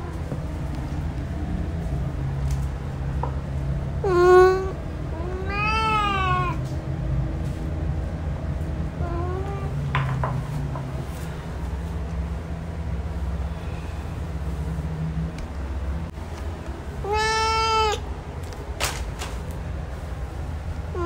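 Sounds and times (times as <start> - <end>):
steady low hum: 0.0 - 21.0
cat meowing: 4.0 - 6.7, 9.0 - 9.8, 17.0 - 18.0.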